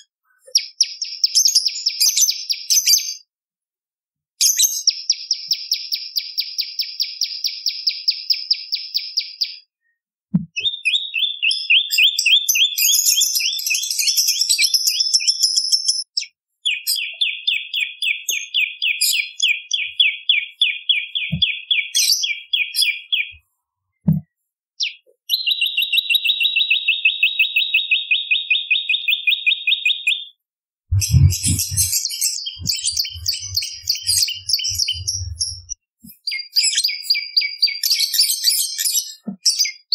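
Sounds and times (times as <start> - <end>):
warbler high chirps: 0.4 - 3.2, 4.4 - 9.7, 10.6 - 23.4, 30.9 - 39.9
low thumps: 24.0 - 24.2, 30.9 - 32.0, 32.6 - 35.8.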